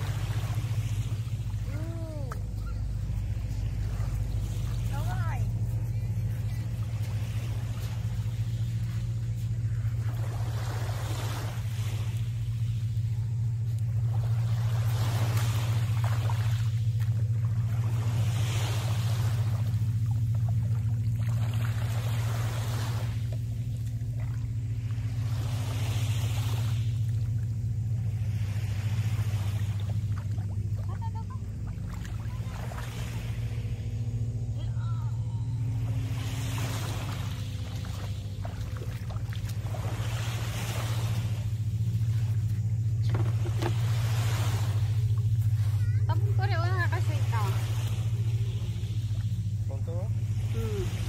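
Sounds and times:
small waves washing on beach: 0.0s - 51.0s
steady low drone: 0.0s - 51.0s
wading in shallow water: 0.0s - 51.0s.

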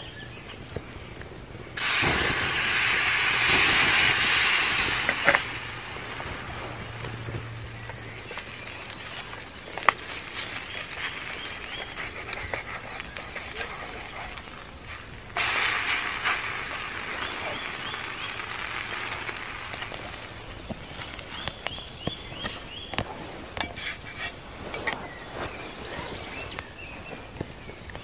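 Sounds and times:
fire crackling: 1.1s - 28.0s
food sizzling in a pan: 1.8s - 9.6s, 14.6s - 20.6s.

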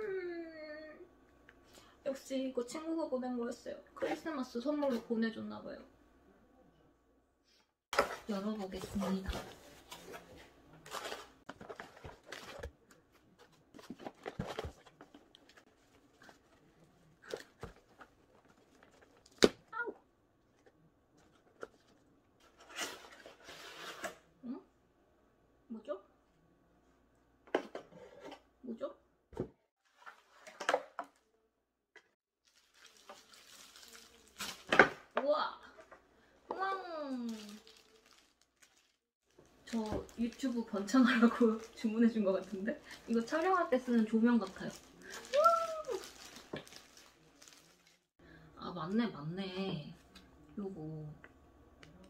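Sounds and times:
packaging rustling: 37.3s - 43.7s, 44.4s - 48.1s.

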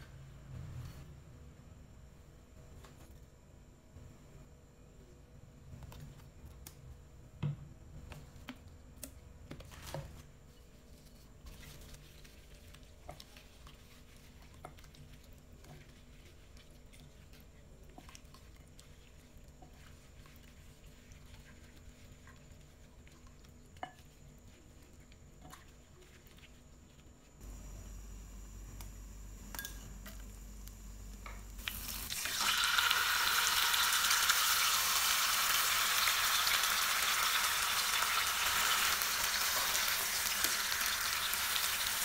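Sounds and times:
wet squishing of rubbing raw chicken: 10.7s - 27.3s.

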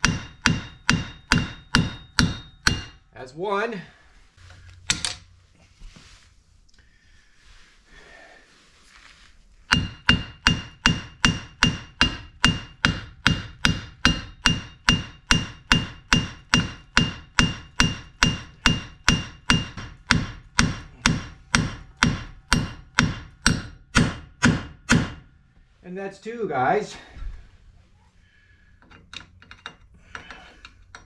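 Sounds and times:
hammer blows on metal: 9.7s - 25.3s.

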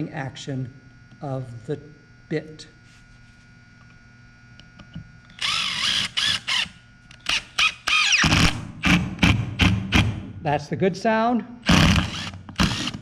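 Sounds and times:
impact driver motor spinning: 4.8s - 10.2s, 11.6s - 13.0s
impact driver hammering impacts: 5.4s - 10.3s, 11.6s - 13.0s.

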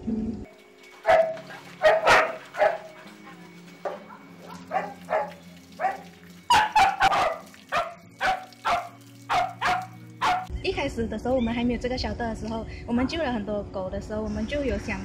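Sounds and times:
dogs barking: 1.0s - 10.5s.

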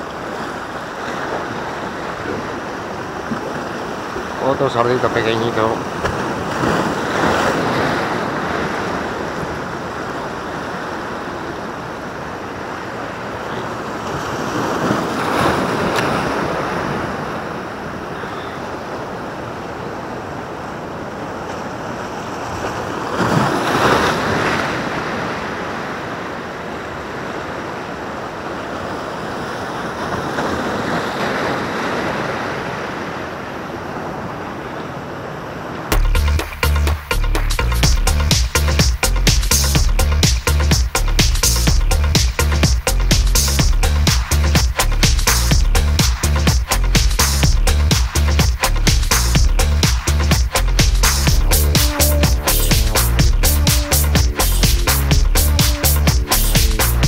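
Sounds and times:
sea waves breaking on rocks: 0.0s - 36.0s.

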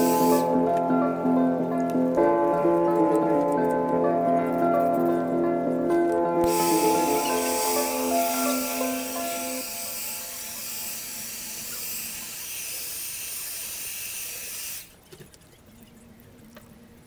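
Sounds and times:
steady high hiss: 0.0s - 0.6s, 6.4s - 14.9s
background music: 0.0s - 10.6s.

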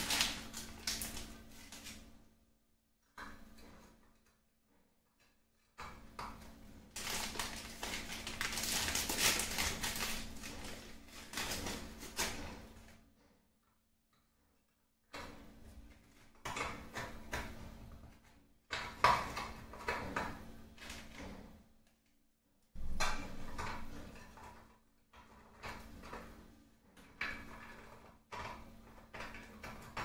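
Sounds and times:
biscuits clicking and tapping: 27.1s - 30.0s.

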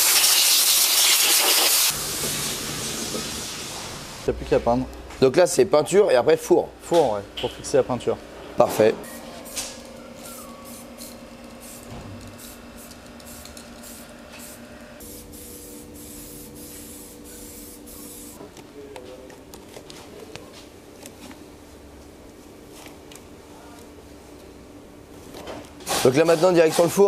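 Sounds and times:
spray paint can hissing: 0.0s - 2.0s, 10.3s - 18.4s
faint shop hum: 0.0s - 27.0s.

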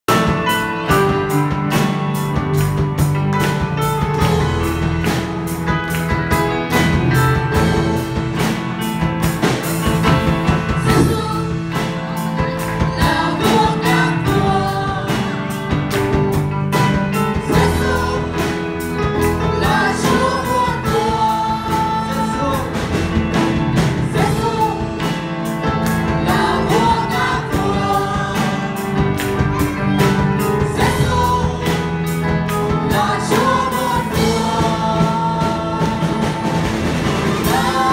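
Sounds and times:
drum kit: 0.0s - 37.9s
keyboard: 0.0s - 37.9s
electric guitar: 0.1s - 37.9s
woman and man singing a hymn: 10.7s - 15.8s, 17.3s - 23.1s, 24.0s - 25.2s, 26.0s - 29.1s, 30.6s - 37.9s.

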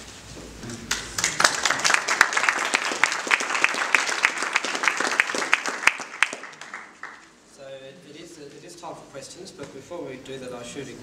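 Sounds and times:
audience applauding: 0.8s - 7.3s.

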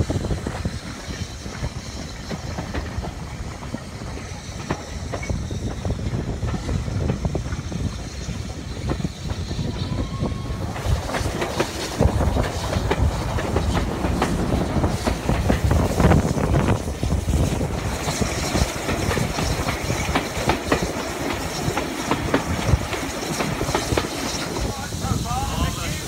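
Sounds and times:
train wheels clicking over rail joints: 0.0s - 25.0s
low train rumble: 0.0s - 26.0s.

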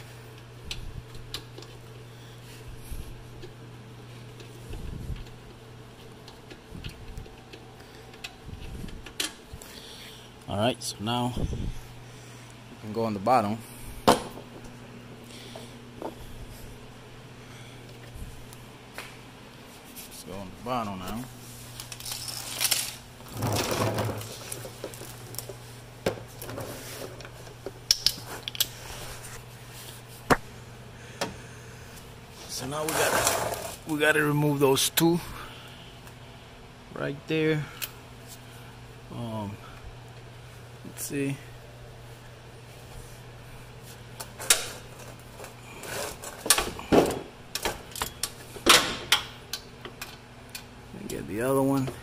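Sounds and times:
steady low hum: 0.0s - 52.0s
rustling and shuffling: 17.8s - 30.5s, 41.6s - 46.4s.

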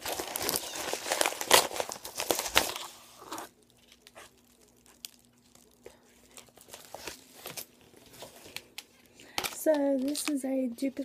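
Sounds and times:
paper envelope tearing: 0.0s - 8.3s
paper rustling and clicks: 0.0s - 11.0s.

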